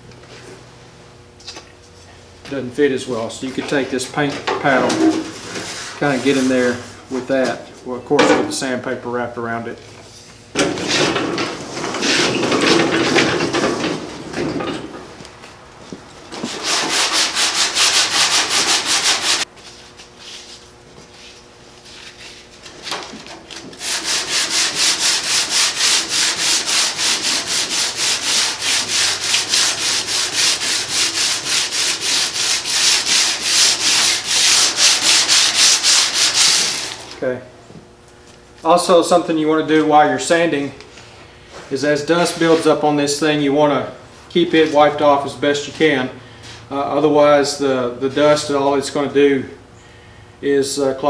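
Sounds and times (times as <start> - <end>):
sandpaper rubbing painted metal: 5.4 - 7.0, 16.4 - 22.6, 23.8 - 37.2.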